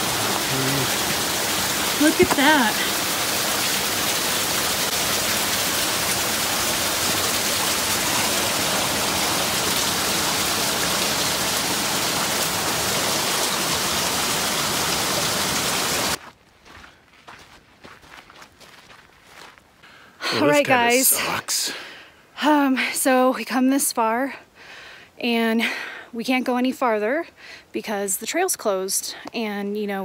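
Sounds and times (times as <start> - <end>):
creek rushing over rocks: 0.0 - 16.2.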